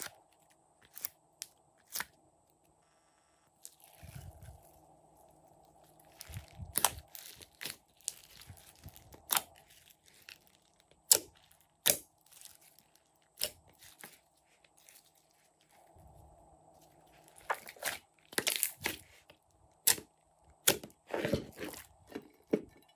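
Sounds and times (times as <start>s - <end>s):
slime popping and crackling: 5.6s - 15.2s, 17.4s - 19.1s.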